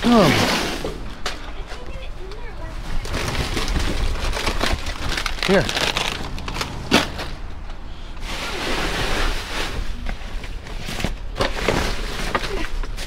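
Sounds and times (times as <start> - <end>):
food bags rustling: 2.7 - 13.0.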